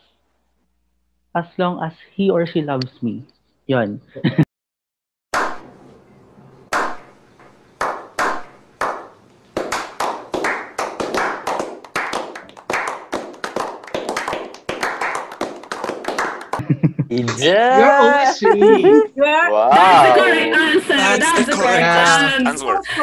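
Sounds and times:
hand clapping: 6.7 - 7.0, 7.8 - 16.6.

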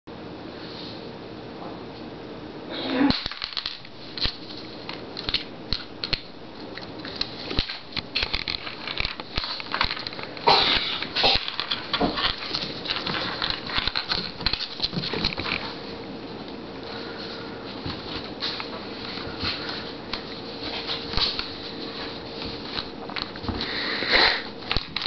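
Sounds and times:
dog claws clicking on wooden floor: 3.2 - 15.8, 24.6 - 25.0
dog crunching biscuit: 5.2 - 15.7.

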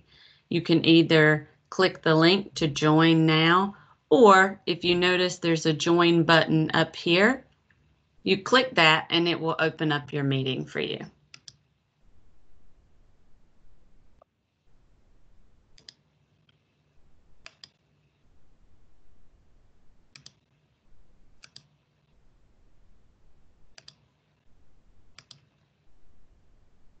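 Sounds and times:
computer mouse clicking: 11.3 - 11.6, 15.7 - 16.6, 17.4 - 17.8, 20.1 - 20.5, 21.4 - 21.8, 23.7 - 24.1, 25.1 - 25.6.

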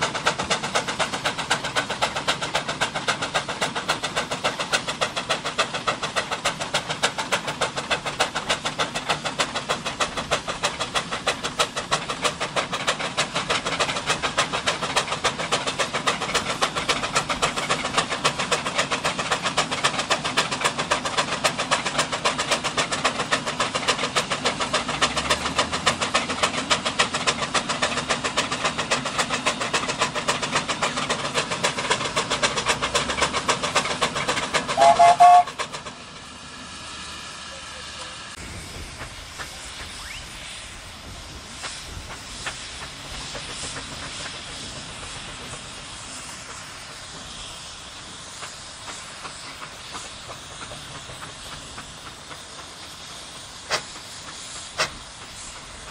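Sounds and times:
steam engine exhaust chuffing: 0.0 - 55.9
steam whistle blast: 34.7 - 35.6, 39.9 - 40.4.

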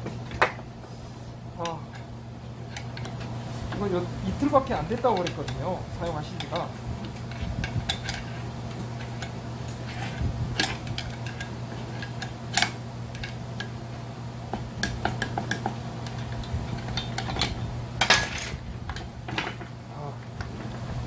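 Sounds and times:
steady low hum: 0.0 - 21.0
metal tools clinking and knocking: 4.5 - 13.7, 15.0 - 19.8.

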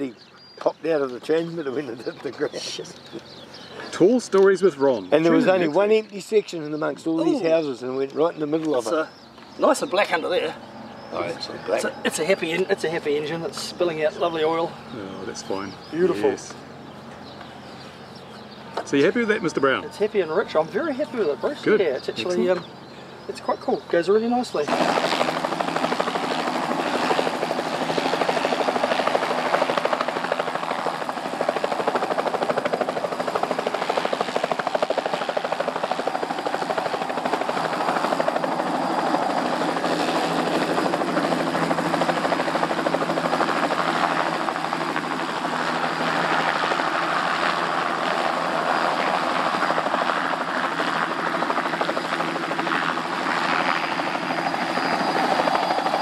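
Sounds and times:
model helicopter droning: 0.0 - 56.0.

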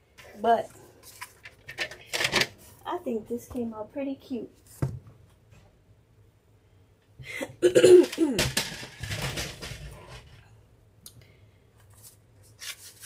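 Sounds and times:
woman coughing: 7.4 - 8.4.

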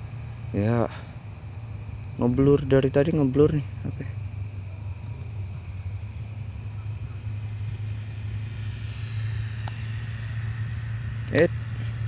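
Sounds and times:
insects chirping: 0.0 - 12.0
low engine hum: 0.0 - 12.0.

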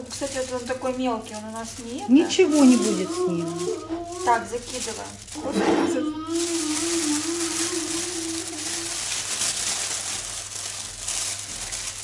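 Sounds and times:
plastic bag rustling and crinkling: 0.0 - 12.0
wavering voice-like tone: 2.1 - 4.6, 5.4 - 9.0.

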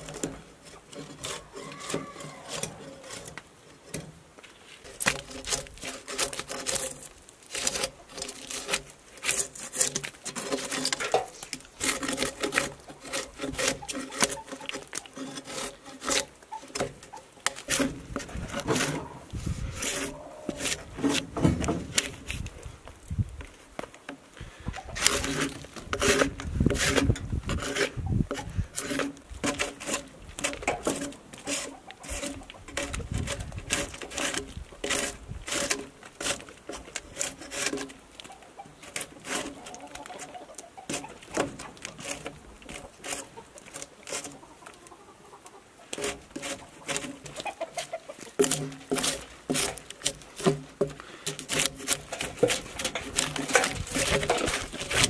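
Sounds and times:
drawknife scraping wood: 0.0 - 22.7, 24.8 - 44.4, 45.9 - 55.0
chickens clucking: 1.1 - 3.0, 12.8 - 21.2, 24.4 - 25.5, 27.8 - 28.6, 30.5 - 33.3, 38.2 - 49.7.

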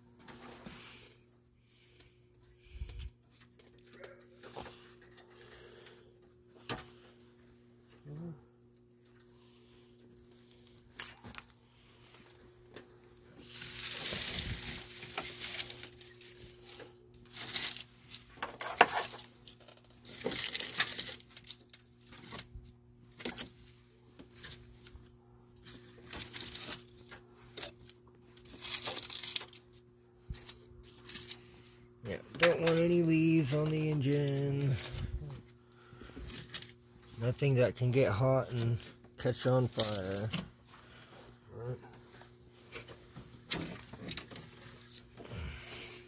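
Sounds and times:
dry leaves crunching: 13.4 - 18.4.

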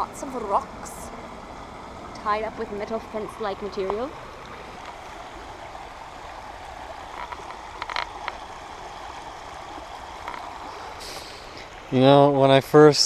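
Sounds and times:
creek running over stones: 0.0 - 13.0.

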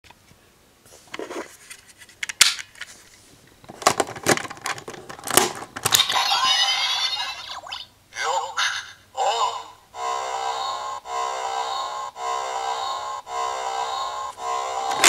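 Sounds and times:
toy belt electronic sound effect: 5.9 - 15.0.

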